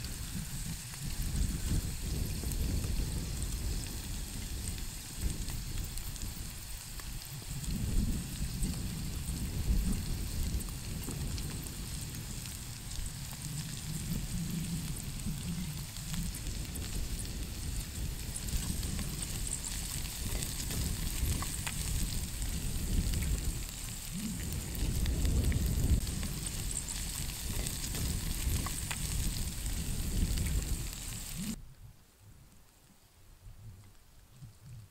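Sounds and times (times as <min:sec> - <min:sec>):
food sizzling in a frying pan: 0:00.0 - 0:31.6
low rumble: 0:07.5 - 0:31.6.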